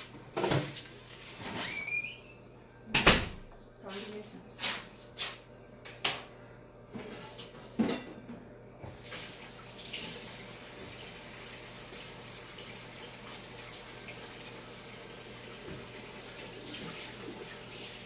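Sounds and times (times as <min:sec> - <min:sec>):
kitchen tap running: 0:08.8 - 0:18.0.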